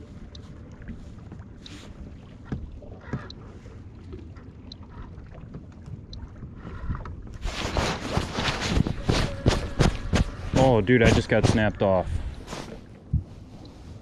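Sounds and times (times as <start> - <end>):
wind and water rumble: 0.0 - 14.0
rustling: 7.4 - 11.6.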